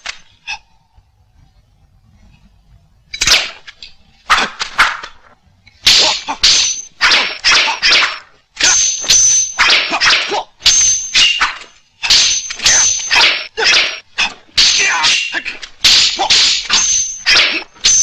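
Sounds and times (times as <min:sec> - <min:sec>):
metal blades clashing: 0:05.8 - 0:18.0.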